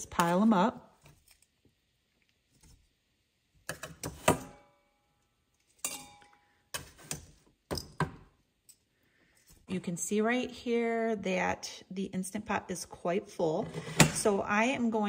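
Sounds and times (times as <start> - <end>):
metal tongs clanking on pans: 5.8 - 8.0.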